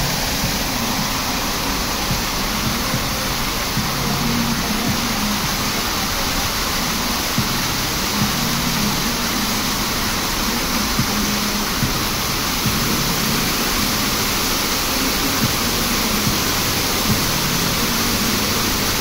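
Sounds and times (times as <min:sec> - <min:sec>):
fountain jets splashing: 0:00.0 - 0:19.0
low hum: 0:00.0 - 0:19.0.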